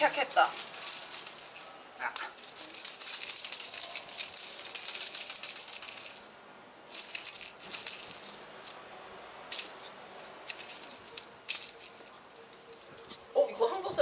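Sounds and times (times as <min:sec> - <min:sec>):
cat toy jingling: 0:00.0 - 0:14.0.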